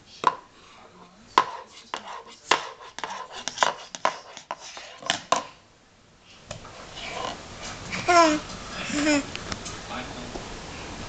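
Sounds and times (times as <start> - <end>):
plastic cups tapping on wooden floor: 0.2 - 0.5, 1.4 - 5.5.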